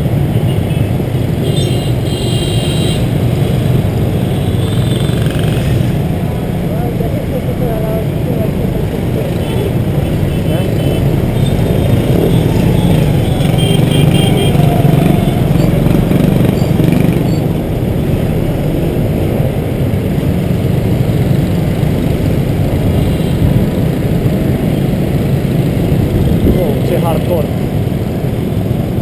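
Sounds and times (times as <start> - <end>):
motorbike engines: 0.0 - 29.0
scooter engine running: 3.1 - 8.3, 9.0 - 26.4.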